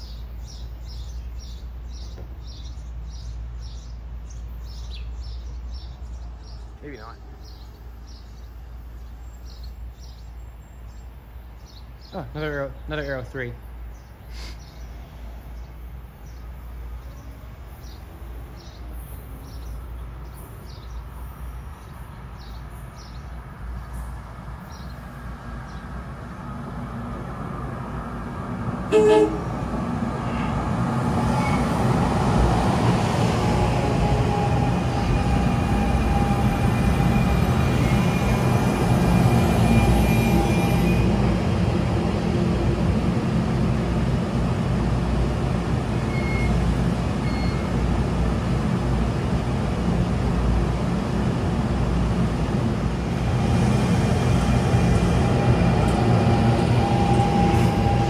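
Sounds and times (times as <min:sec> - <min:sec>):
train rumbling: 0:00.0 - 0:58.0
wheels rumbling on rail: 0:00.0 - 0:58.0
train horn blast: 0:28.9 - 0:29.6, 0:30.2 - 0:30.7, 0:39.7 - 0:41.2.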